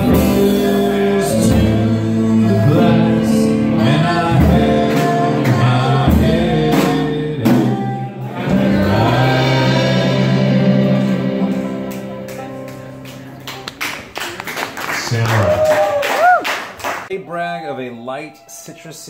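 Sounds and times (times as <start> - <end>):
string band playing: 0.0 - 14.4
people clapping: 11.9 - 17.1.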